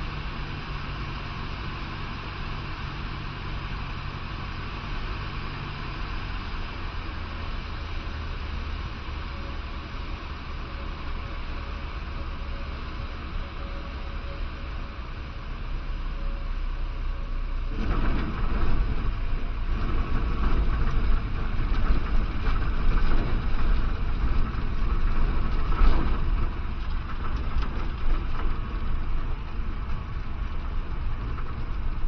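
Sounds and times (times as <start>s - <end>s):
aircraft engine running: 0.0s - 32.0s
wheels rattling over grass: 17.6s - 32.0s.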